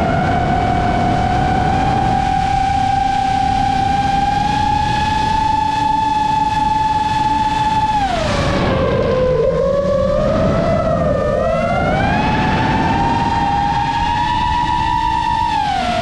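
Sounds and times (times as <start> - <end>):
drone motors whining: 0.0 - 16.0
rushing noise: 0.0 - 16.0.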